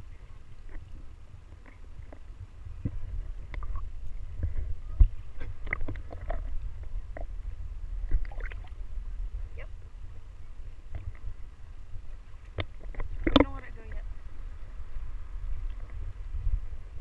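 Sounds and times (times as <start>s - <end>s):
water sloshing and lapping: 0.0s - 17.0s
small splashes and knocks: 8.0s - 8.8s, 12.3s - 14.0s.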